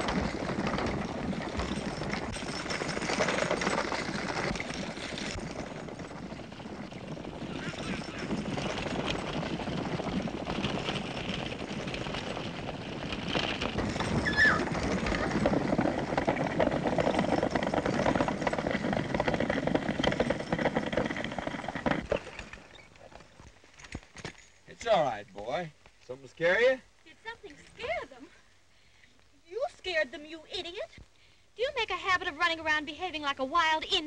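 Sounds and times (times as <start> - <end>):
buggy rattling: 0.0 - 25.7
galloping hooves: 0.0 - 34.0.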